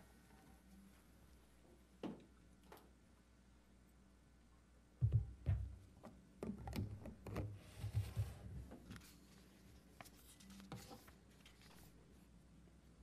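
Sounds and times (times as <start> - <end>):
knocks on a tabletop: 5.0 - 5.8
paper rustling: 7.8 - 12.0.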